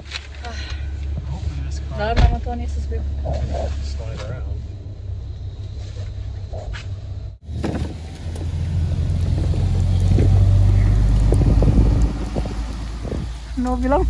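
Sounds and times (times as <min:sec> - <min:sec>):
truck engine and tyre rumble: 0:00.0 - 0:14.0.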